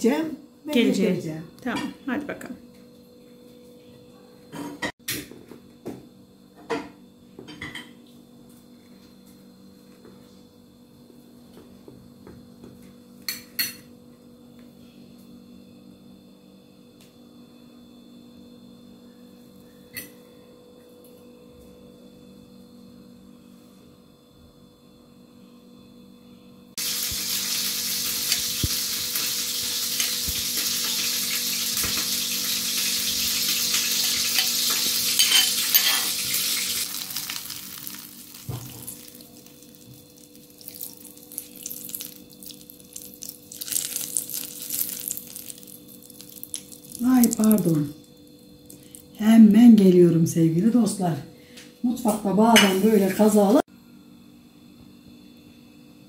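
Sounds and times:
faint steady hum: 0:06.1 - 0:56.0
butter sizzling in a hot pan: 0:26.8 - 0:47.8
dishes and utensils clinking: 0:33.9 - 0:36.4.

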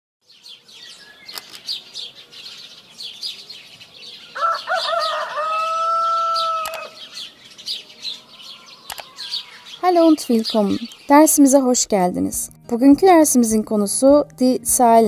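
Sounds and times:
small birds chirping: 0:00.2 - 0:12.5
sharp clicks: 0:01.3 - 0:01.7, 0:06.6 - 0:06.9, 0:08.8 - 0:09.1
rooster crowing: 0:04.3 - 0:07.1.

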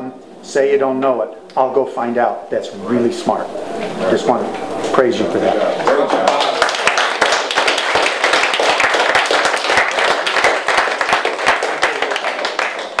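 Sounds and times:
small audience applauding: 0:05.8 - 0:13.0.

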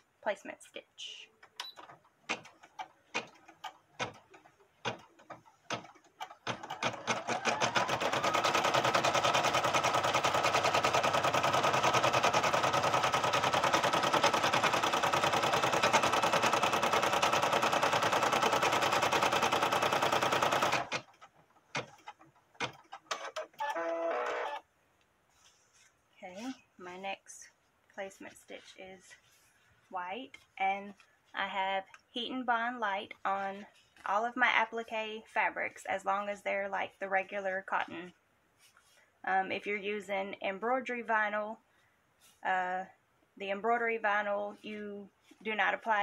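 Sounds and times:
embroidery machine stitching: 0:01.7 - 0:24.6.

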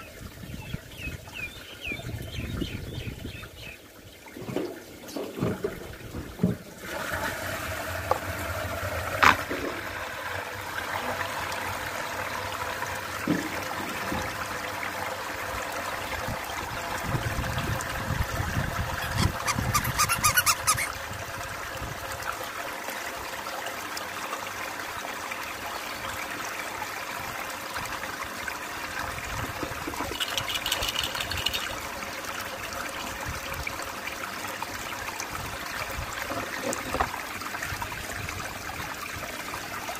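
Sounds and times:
water swirling in basin: 0:16.1 - 0:21.6
high squeaking: 0:18.9 - 0:21.0.

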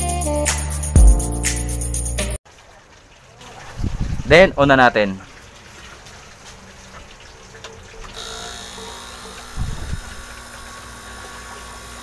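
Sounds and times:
compressor pump humming: 0:08.2 - 0:12.0.

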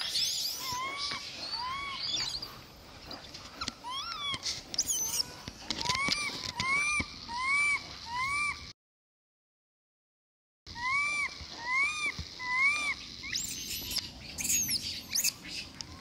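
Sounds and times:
high-pitched squeaks: 0:00.0 - 0:08.6, 0:12.8 - 0:15.5
monkeys calling: 0:00.0 - 0:08.7, 0:10.7 - 0:16.0.

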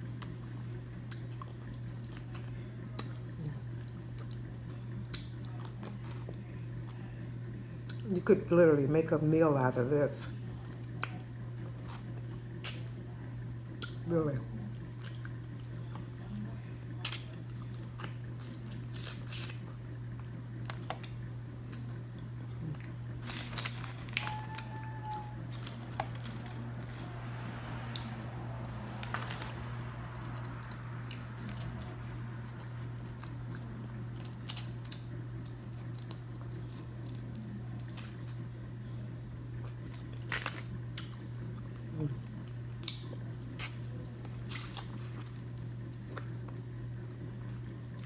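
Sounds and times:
steady low hum: 0:00.0 - 0:48.0
person chewing oysters: 0:16.9 - 0:27.0, 0:29.2 - 0:38.5, 0:39.5 - 0:48.0.

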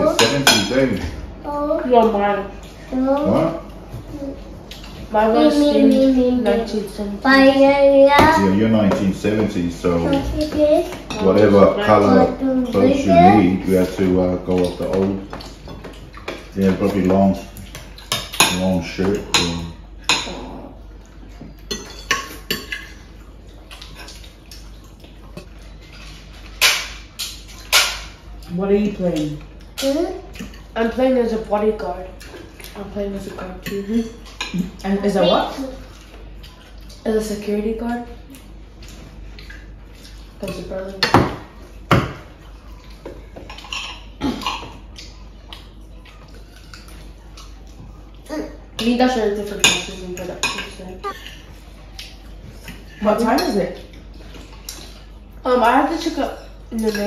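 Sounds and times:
cutlery clinking on plates: 0:00.2 - 0:00.8, 0:21.3 - 0:23.1, 0:48.8 - 0:51.5.

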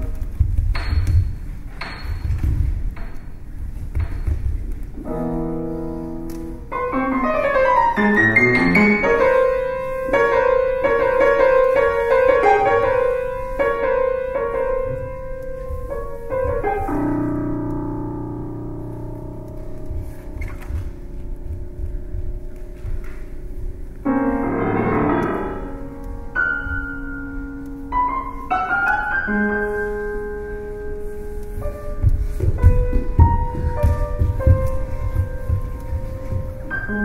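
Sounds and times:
solo piano playing: 0:05.0 - 0:37.0
soft low thuds: 0:14.8 - 0:27.0, 0:31.4 - 0:36.9.

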